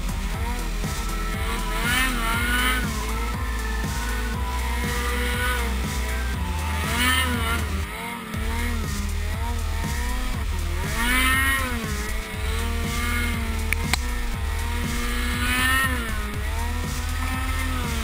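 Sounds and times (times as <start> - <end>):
snowmobile engine revving: 0.0 - 18.0
sharp click: 13.7 - 14.3.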